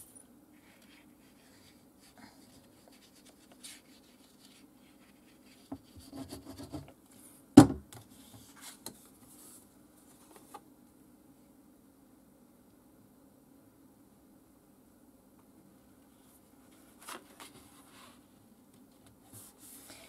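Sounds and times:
faint steady hum: 0.0s - 20.0s
paper and card rustling: 0.6s - 5.6s, 16.6s - 18.2s.

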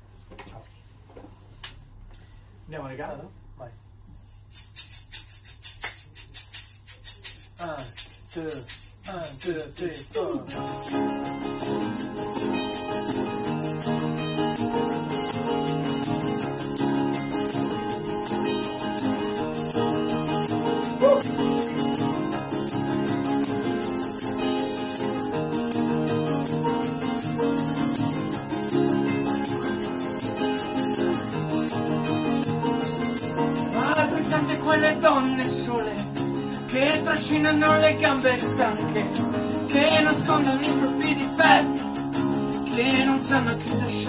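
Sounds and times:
hand shaker rhythm: 4.1s - 44.0s
acoustic guitars strumming: 9.0s - 44.0s.

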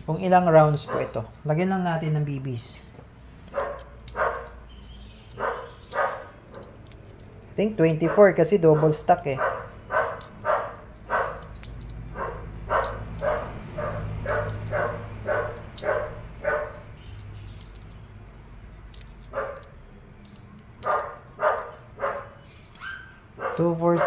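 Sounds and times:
dog barking: 0.8s - 1.3s, 3.5s - 4.6s, 5.4s - 6.3s, 8.0s - 11.5s, 12.1s - 16.9s, 19.3s - 19.6s, 20.8s - 24.0s.

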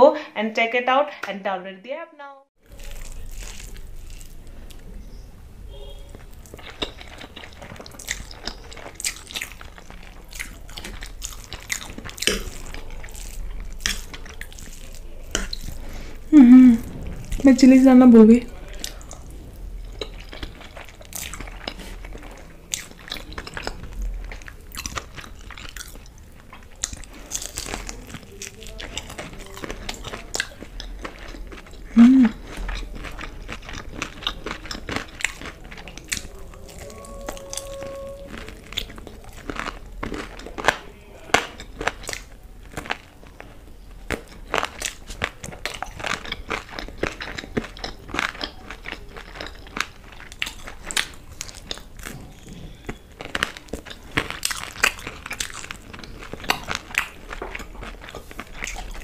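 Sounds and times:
chewing: 2.6s - 17.5s, 18.5s - 59.0s
crunching fried chicken: 2.6s - 17.5s, 18.4s - 59.0s
person humming: 16.3s - 16.8s, 32.0s - 32.4s, 36.5s - 38.6s.

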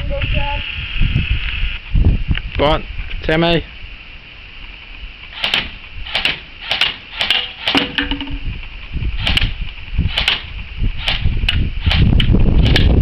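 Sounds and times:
airsoft gun shots clicking: 5.3s - 8.5s, 9.2s - 12.9s.

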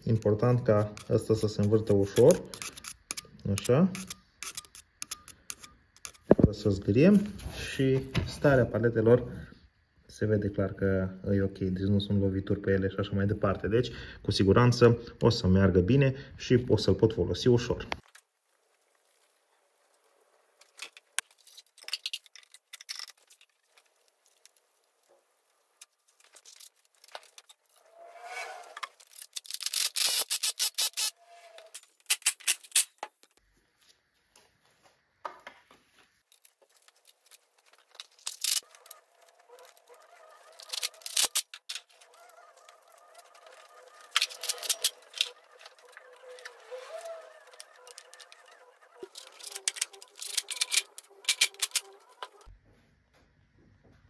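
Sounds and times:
metal tools clicking and knocking: 0.9s - 6.4s, 49.1s - 52.5s.

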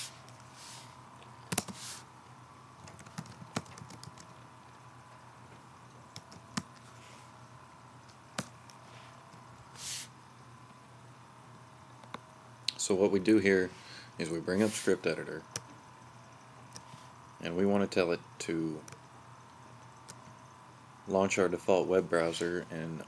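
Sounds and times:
faint electrical hum: 0.0s - 23.0s
keyboard typing and clicks: 2.8s - 4.4s
short soft hiss: 9.7s - 10.2s.

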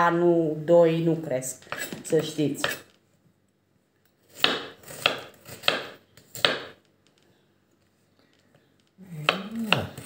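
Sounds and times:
knife chopping on cutting board: 4.4s - 6.8s, 9.2s - 10.0s.

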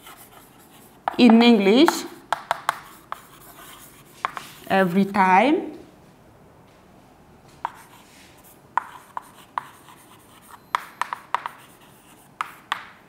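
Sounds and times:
chalk scraping: 0.0s - 1.1s, 1.9s - 4.7s, 7.6s - 12.8s
chalk tapping on blackboard: 0.0s - 4.6s, 7.6s - 8.0s, 8.8s - 13.0s.

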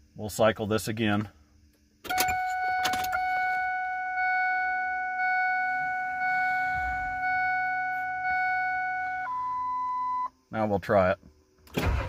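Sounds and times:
dash warning tone: 2.1s - 10.3s
low fuel pump hum: 2.1s - 10.3s.

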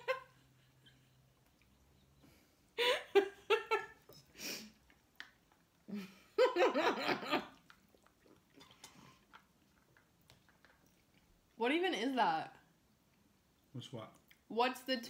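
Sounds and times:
woman laughing: 0.0s - 1.0s, 2.8s - 4.0s, 5.9s - 7.5s.

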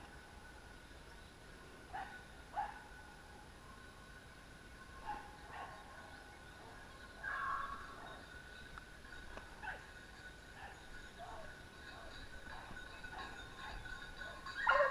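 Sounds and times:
distant hounds barking: 1.9s - 3.2s, 5.0s - 8.4s, 9.4s - 14.9s
hound baying: 10.6s - 14.9s.

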